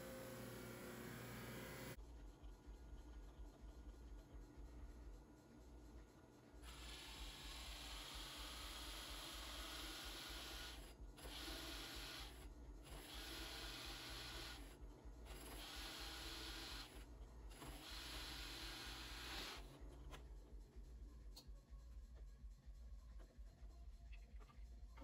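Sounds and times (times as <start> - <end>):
drill press motor hum: 0.0 - 2.0, 6.6 - 19.9.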